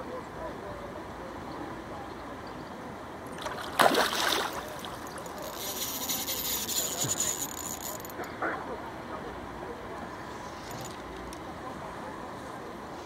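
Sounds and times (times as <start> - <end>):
fish splashing at water surface: 3.3 - 5.5
fishing reel rasping: 5.1 - 8.3.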